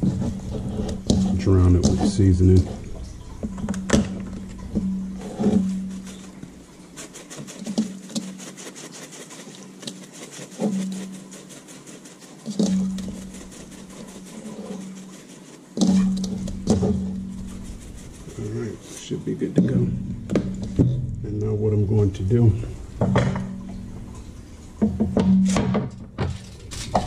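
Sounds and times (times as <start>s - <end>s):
shaker bottle rattling: 3.4s - 18.4s
knocks of bottle handling: 20.1s - 21.1s.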